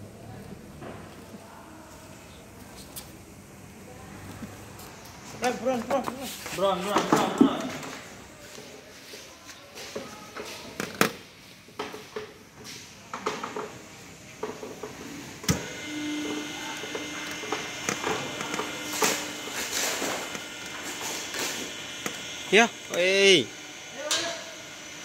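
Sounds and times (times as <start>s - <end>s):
machine humming and whining: 13.1s - 25.0s.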